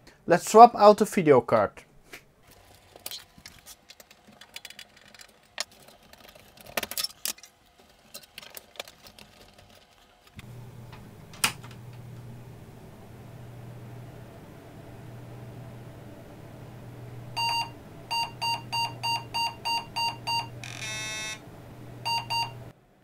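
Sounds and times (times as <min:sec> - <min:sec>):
metallic clicks and clatters: 0:02.6 - 0:10.4
steady low hum: 0:10.4 - 0:22.8.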